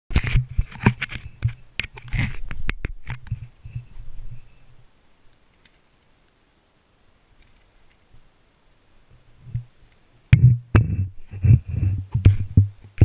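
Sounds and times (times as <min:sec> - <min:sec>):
camera handling noise: 0:00.1 - 0:03.5.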